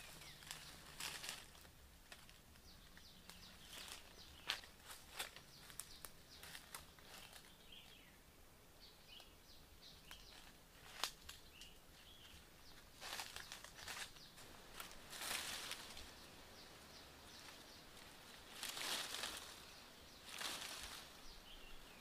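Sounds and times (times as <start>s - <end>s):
footsteps crunching through dry leaves: 0.0s - 8.0s, 10.0s - 21.9s
rustling and crackling: 0.0s - 8.0s, 10.0s - 21.3s
faint bird chirps: 2.6s - 22.0s
twig snapping: 10.8s - 11.7s.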